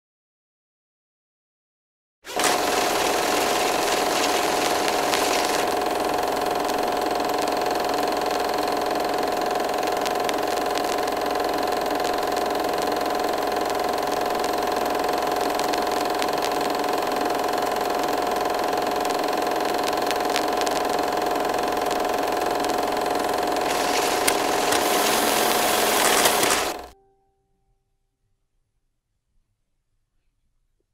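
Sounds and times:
film projector whirring: 2.3s - 27.0s.

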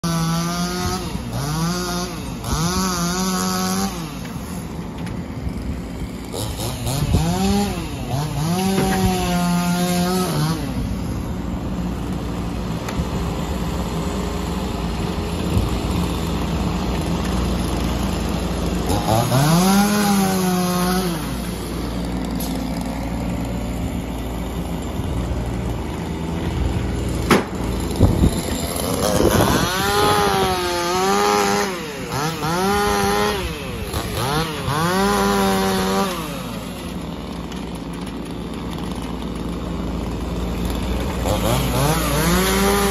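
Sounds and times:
chainsaw revving and cutting: 0.0s - 42.9s
mini excavator engine running: 0.0s - 42.9s.

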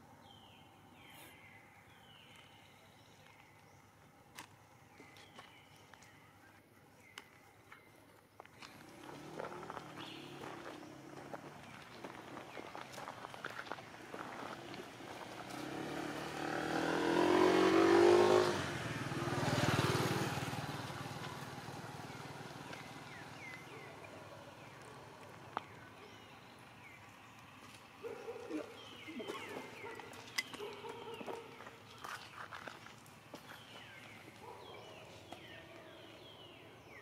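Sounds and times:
vehicle engine passing: 8.6s - 30.0s.

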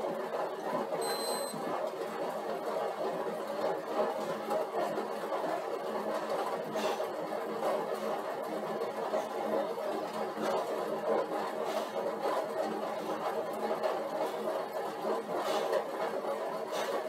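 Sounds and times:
exercise bike whirring: 0.0s - 17.0s
short high beep: 1.0s - 1.6s.

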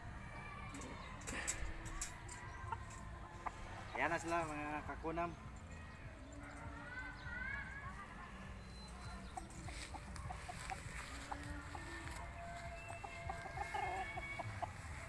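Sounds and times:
chickens clucking: 0.7s - 5.0s, 7.8s - 15.0s.

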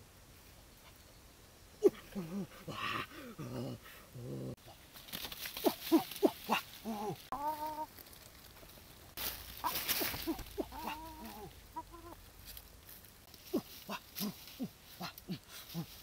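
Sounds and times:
rustling: 4.5s - 16.0s
hen clucking and squawking: 9.6s - 12.2s.

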